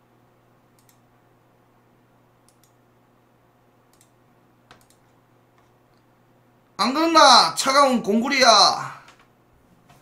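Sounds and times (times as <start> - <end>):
low steady hum: 0.0 - 10.0
computer mouse clicks: 0.8 - 1.0, 2.4 - 2.8, 3.9 - 6.0.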